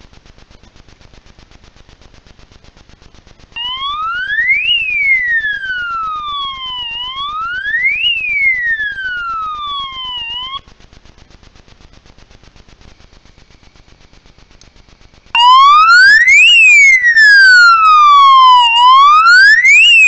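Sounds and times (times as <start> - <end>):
wailing alarm siren: 3.6 - 10.6, 15.4 - 20.0.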